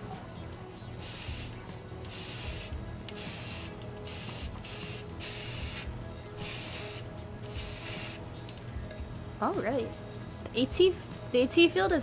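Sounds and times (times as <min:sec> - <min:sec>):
spray paint can hissing: 0:01.0 - 0:08.2.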